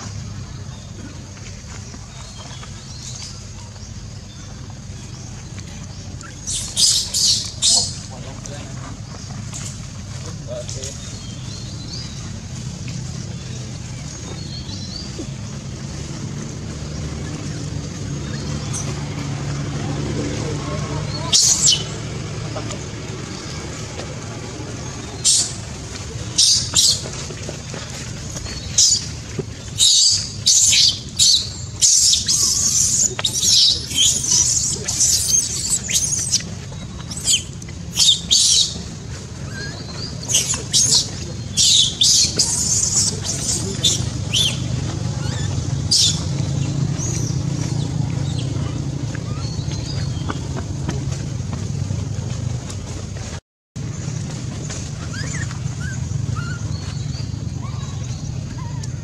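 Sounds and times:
low motor rumble: 0.0s - 59.0s
infant monkey squealing: 29.8s - 36.5s, 39.5s - 46.2s, 55.0s - 56.7s.

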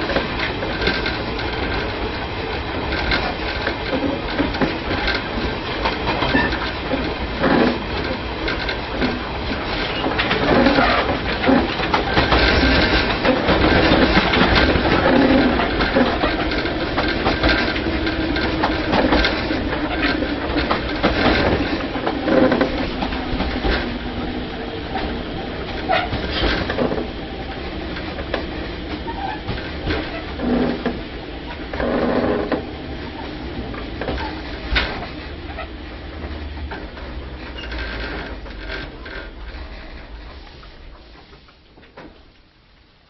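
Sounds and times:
train rumble: 0.0s - 43.0s
knocks and rattles: 2.8s - 32.7s.

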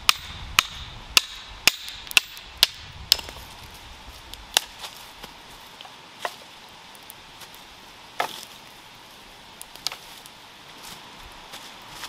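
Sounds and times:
hatchet chopping firewood: 0.0s - 3.5s, 4.5s - 5.0s, 8.2s - 8.5s, 9.7s - 10.0s.

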